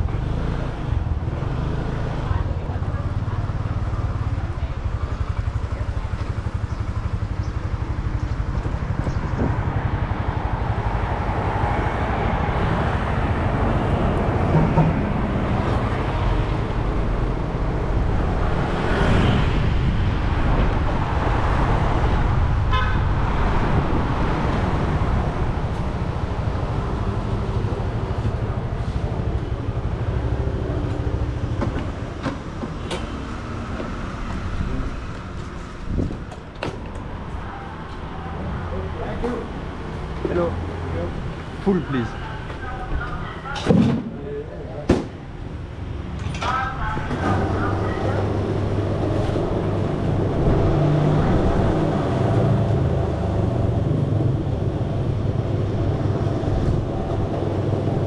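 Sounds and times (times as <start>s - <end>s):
motor scooter rumbling: 0.0s - 41.6s.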